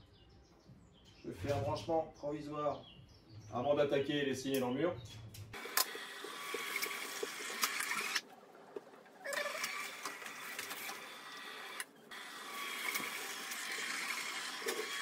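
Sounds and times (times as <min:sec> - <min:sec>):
roller shutter motor running: 0:05.6 - 0:15.0.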